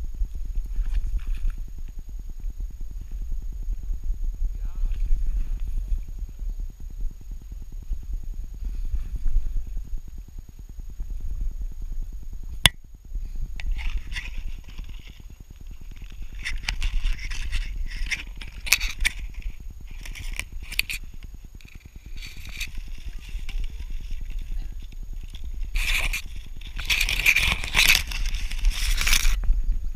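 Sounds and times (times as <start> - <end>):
low rumble of camera mount: 13.5 - 29.7
dry grass scraping and crackling: 13.6 - 29.4.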